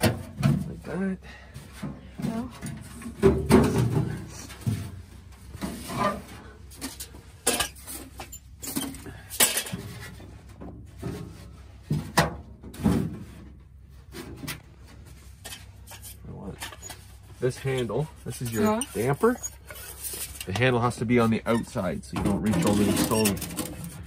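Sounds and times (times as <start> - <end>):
metal stove clunks and knocks: 0.0 - 0.8, 1.8 - 4.9.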